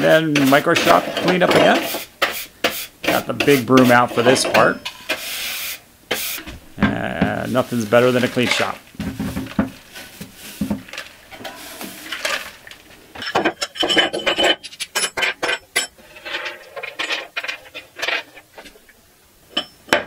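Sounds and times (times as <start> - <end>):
brush sweeping sawdust: 0.1 - 6.5, 7.3 - 12.8
metal parts clinking on workbench: 13.2 - 18.2.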